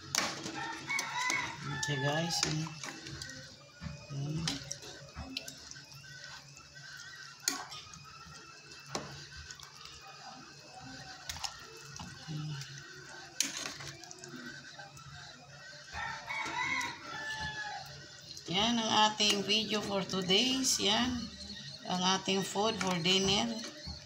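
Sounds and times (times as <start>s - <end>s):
soup sloshing and dripping: 0.0s - 17.0s.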